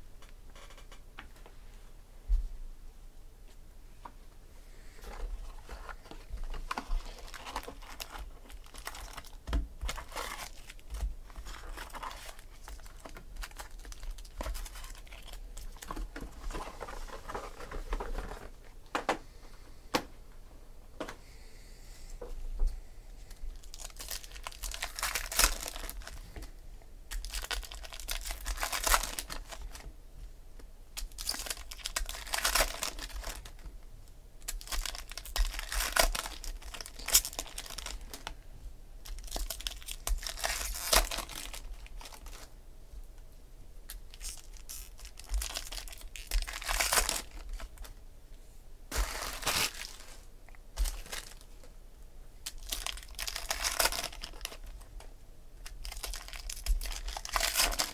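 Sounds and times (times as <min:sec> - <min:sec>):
foil wrappers tearing and crinkling: 0:06.5 - 0:18.4, 0:23.6 - 0:26.2, 0:27.1 - 0:29.9, 0:31.0 - 0:33.6, 0:34.4 - 0:38.3, 0:39.0 - 0:42.5, 0:44.0 - 0:47.9, 0:48.9 - 0:50.2, 0:50.8 - 0:51.5, 0:52.4 - 0:54.8, 0:55.6 - 0:57.9.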